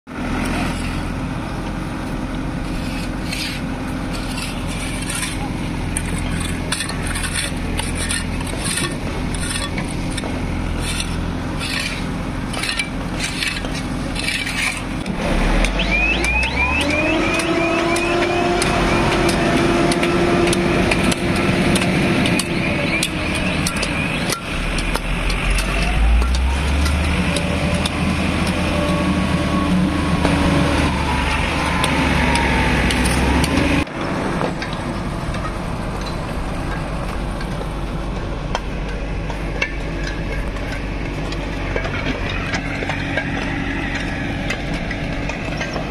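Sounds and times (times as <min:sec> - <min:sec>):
engine revving with whine: 0:00.1 - 0:37.3, 0:39.1 - 0:45.9
loader diesel engines humming: 0:00.1 - 0:45.9
clanks and knocks: 0:04.2 - 0:15.2, 0:31.8 - 0:45.9
high squeaks: 0:10.8 - 0:14.9.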